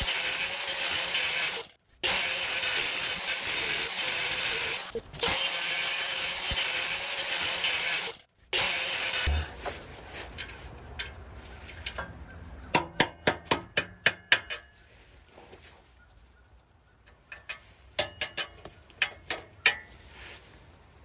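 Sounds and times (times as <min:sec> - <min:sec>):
hammer striking metal bolt: 0:12.7 - 0:14.7, 0:17.3 - 0:19.8.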